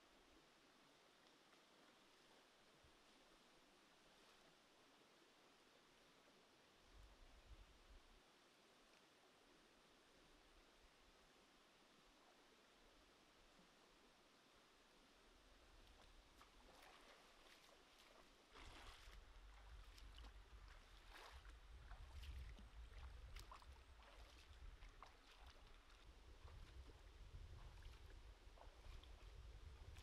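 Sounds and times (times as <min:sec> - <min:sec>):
feet splashing in a stream: 0:15.9 - 0:30.0.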